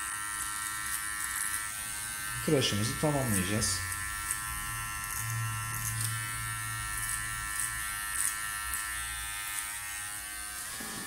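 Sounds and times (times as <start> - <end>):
electric hair clipper buzzing: 0.0 - 11.0.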